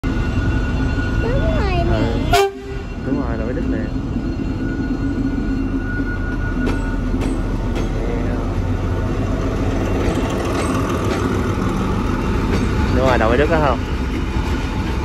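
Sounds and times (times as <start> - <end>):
locomotive engine rumble: 0.1 - 15.0
wheels clicking on track: 9.3 - 15.0.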